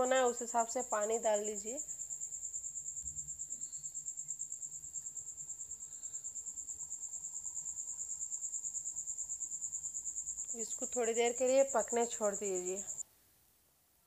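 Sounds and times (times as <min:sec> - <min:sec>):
cricket chirping: 0:00.0 - 0:13.0.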